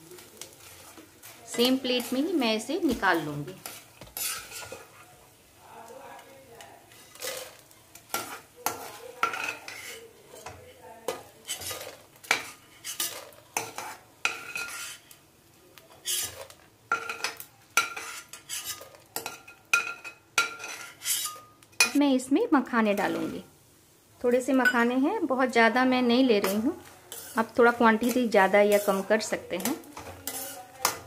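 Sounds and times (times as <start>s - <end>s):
oil sizzling faintly: 0.0s - 31.0s
ladle scraping metal pan: 3.1s - 5.1s, 11.4s - 15.2s, 16.0s - 22.0s, 26.4s - 31.0s.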